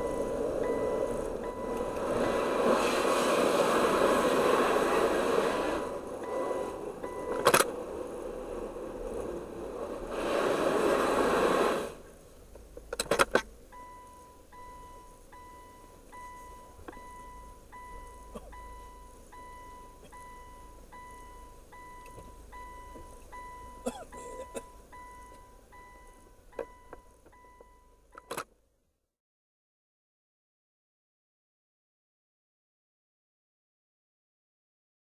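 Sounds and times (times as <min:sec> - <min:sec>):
long electronic beeps: 0:00.0 - 0:02.6
car-wash water spray: 0:00.2 - 0:07.0, 0:07.8 - 0:12.2
sharp clicks and knocks: 0:12.5 - 0:13.6.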